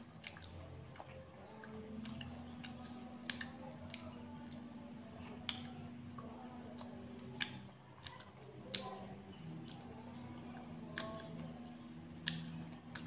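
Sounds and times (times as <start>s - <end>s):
low steady hum: 0.0s - 13.0s
wet mouth clicks while chewing: 0.0s - 13.0s.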